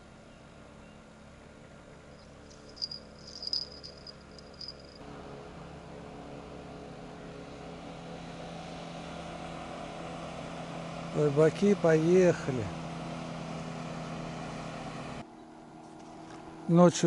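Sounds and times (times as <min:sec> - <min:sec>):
small bird chirping: 0:02.1 - 0:05.0.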